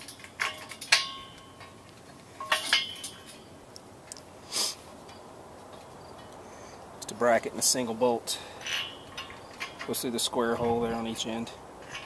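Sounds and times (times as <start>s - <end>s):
metal hardware clinking on steel: 0.0s - 3.5s, 7.1s - 12.0s.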